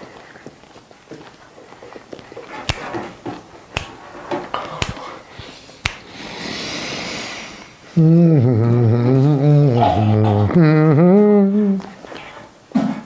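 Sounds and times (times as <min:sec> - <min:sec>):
man humming low: 0:07.9 - 0:12.1.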